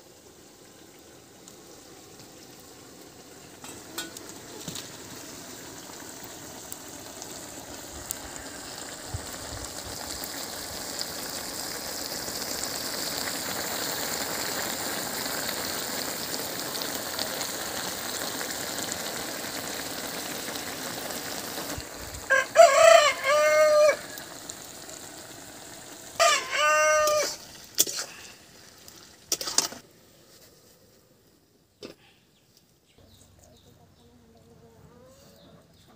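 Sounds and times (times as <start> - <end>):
curry sizzling in a pan: 0.0 - 29.8
rooster crowing: 22.3 - 24.3, 26.1 - 27.4.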